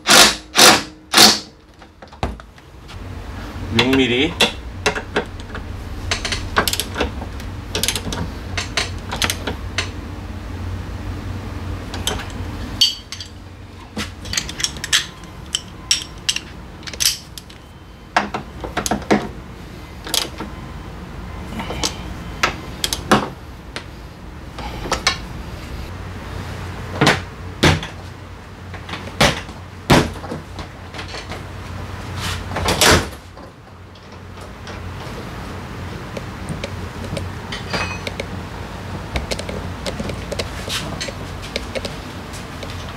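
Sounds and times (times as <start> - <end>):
steady low hum: 0.0 - 42.9
hand tools clicking and clanking: 7.8 - 10.0, 11.9 - 17.6, 36.5 - 38.3.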